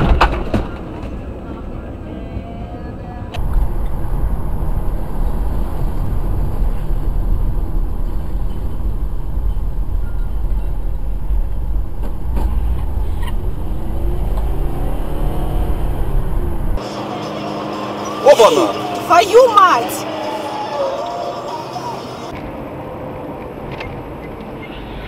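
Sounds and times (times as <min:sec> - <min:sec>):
car road and engine rumble: 0:00.0 - 0:25.0.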